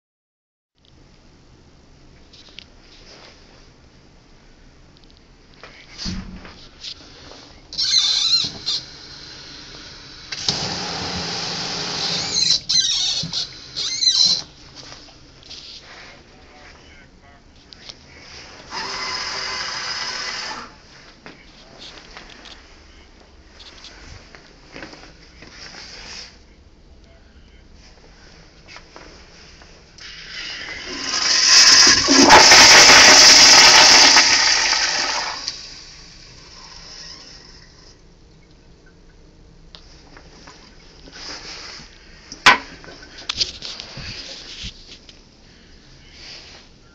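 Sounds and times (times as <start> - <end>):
toilet flushing: 7.8 - 14.4, 18.6 - 20.8, 30.0 - 38.0
water spraying into sink: 8.4 - 14.4
faucet handle squeaking: 12.0 - 14.5.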